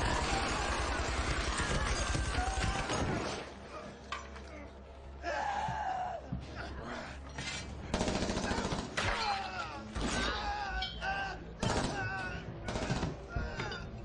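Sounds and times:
rapid gunfire bursts: 7.9 - 9.0, 11.6 - 12.0, 12.7 - 13.2.

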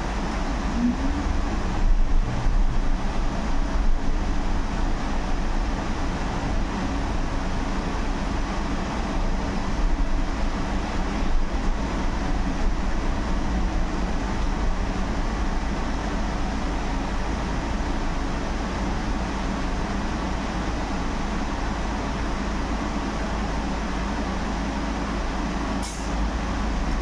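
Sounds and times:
faint steady whine: 0.0 - 27.0
tyres and road rumble: 0.0 - 27.0.

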